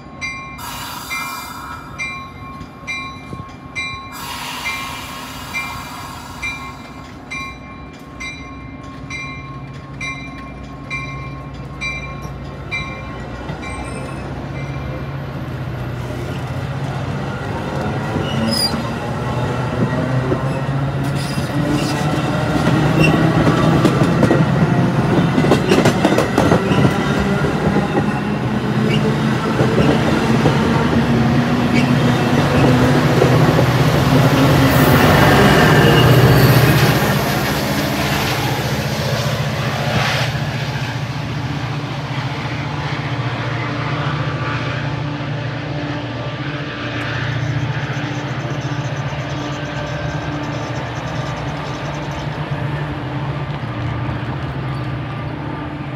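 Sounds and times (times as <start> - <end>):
crossing bell ringing: 0.0 - 15.2
diesel locomotive engine: 0.0 - 55.9
train accelerating past: 0.0 - 55.9
wheels clattering on rail joints: 17.5 - 39.3.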